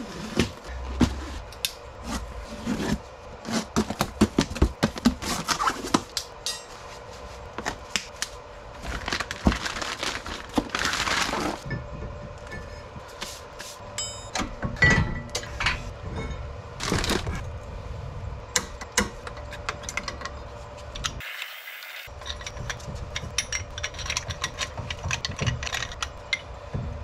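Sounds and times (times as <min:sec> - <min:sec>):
plastic bag rustling: 0:08.7 - 0:11.6.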